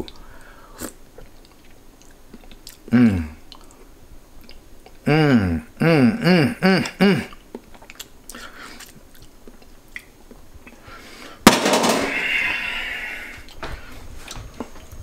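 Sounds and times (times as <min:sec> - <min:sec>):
man humming appreciatively: 0:02.9 - 0:03.4, 0:05.0 - 0:07.4
loud clatter: 0:11.5 - 0:12.4.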